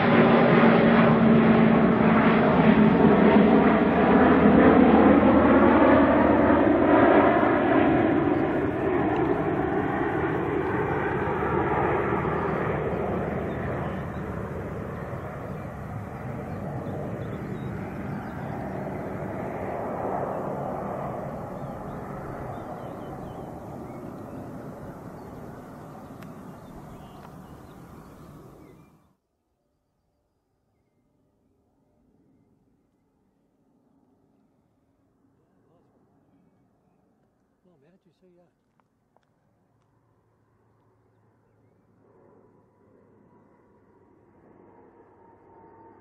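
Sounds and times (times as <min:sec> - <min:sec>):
turboprop aircraft droning in flight: 0:00.0 - 0:29.1, 0:39.3 - 0:46.0.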